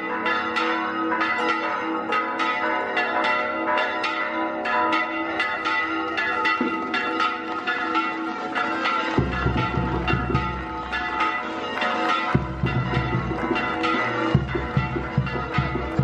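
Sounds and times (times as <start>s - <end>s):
church bells ringing: 0.0s - 16.0s.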